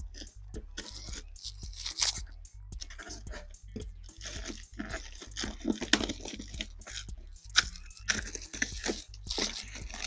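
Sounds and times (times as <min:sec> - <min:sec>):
scissors cutting cardboard box: 0:00.0 - 0:03.5, 0:04.1 - 0:10.0
foil lining crinkling: 0:00.7 - 0:02.2, 0:04.1 - 0:10.0.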